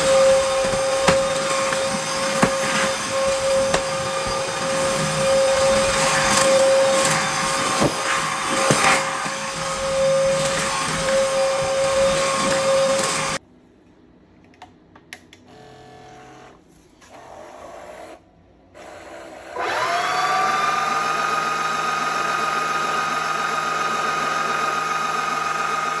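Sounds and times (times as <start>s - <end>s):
vacuum cleaner motor whining: 0.0s - 13.4s, 18.8s - 26.0s.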